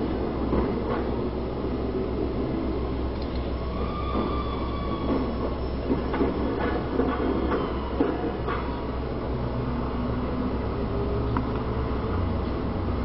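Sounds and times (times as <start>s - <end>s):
streetcar rumbling on track: 0.0s - 13.0s
streetcar knocks: 0.1s - 1.4s, 3.8s - 9.2s
wheel squeal: 3.6s - 8.9s.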